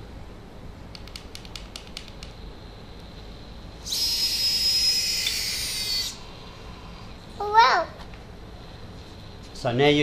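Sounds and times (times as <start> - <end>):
drone motor high whine: 2.7 - 7.2.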